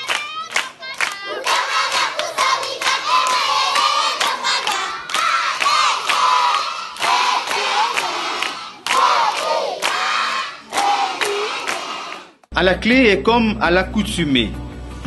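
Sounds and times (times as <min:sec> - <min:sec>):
rhythmic clapping: 0:00.0 - 0:12.5
children singing loudly: 0:00.1 - 0:12.3.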